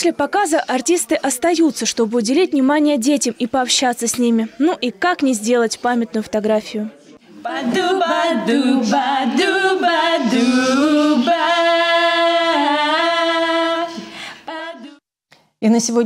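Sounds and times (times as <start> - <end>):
voices singing unaccompanied: 7.3 - 15.0.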